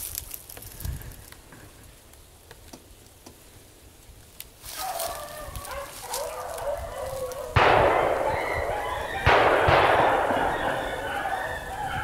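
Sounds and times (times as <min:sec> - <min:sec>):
clothing and gear rustling: 0:04.6 - 0:07.4
hounds baying in the distance: 0:04.7 - 0:12.0.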